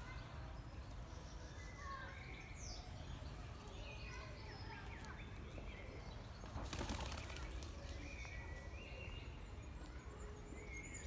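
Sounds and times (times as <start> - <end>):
birds chirping: 0.0 - 11.0
pigeon wings flapping: 6.5 - 8.0.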